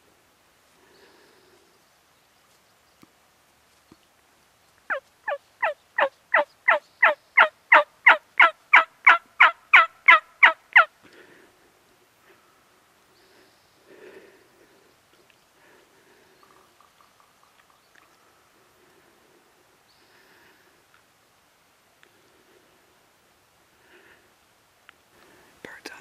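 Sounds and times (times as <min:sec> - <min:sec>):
turkey yelps: 0:04.9 - 0:10.9.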